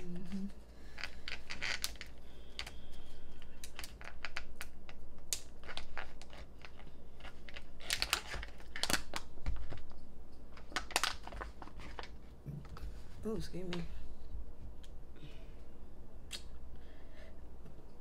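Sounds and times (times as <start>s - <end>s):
plastic pouch crinkling: 1.0s - 2.7s, 3.4s - 12.2s.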